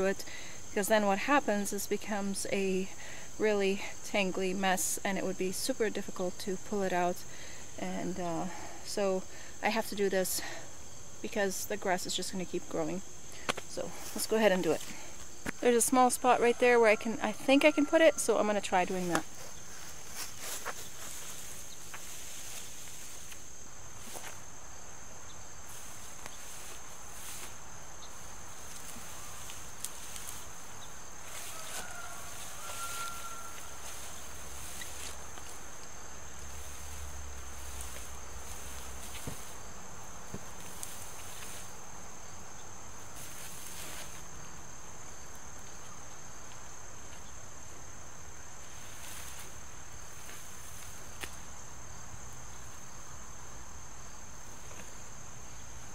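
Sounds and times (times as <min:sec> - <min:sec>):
crickets chirping: 0:00.0 - 0:55.9
plastic netting rustling: 0:25.6 - 0:41.8.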